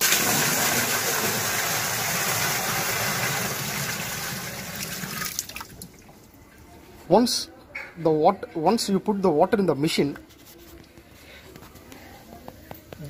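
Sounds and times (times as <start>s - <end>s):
water gushing into washing machine: 0.0s - 5.9s.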